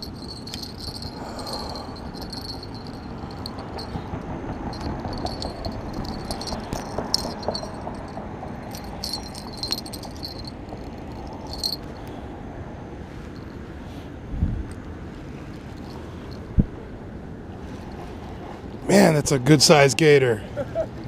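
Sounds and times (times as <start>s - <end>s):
insects chirring: 0.0s - 12.0s
low background rumble: 0.0s - 18.9s.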